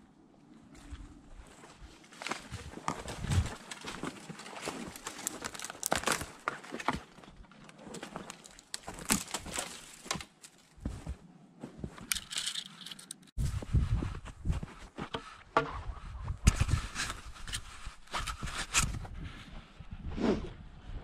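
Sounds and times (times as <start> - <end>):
footsteps in crusted snow: 0.7 - 19.8
twigs snapping against clothing: 2.2 - 10.7.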